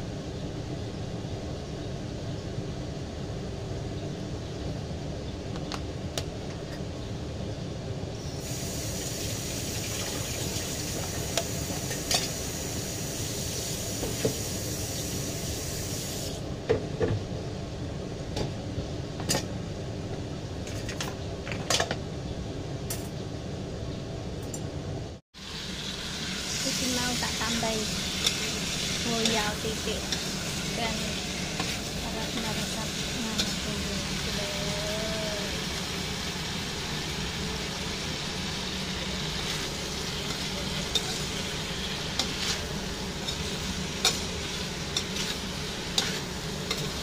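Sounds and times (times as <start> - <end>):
steady mechanical hum: 0.0 - 47.0
steady hiss: 8.1 - 16.4, 25.4 - 47.0.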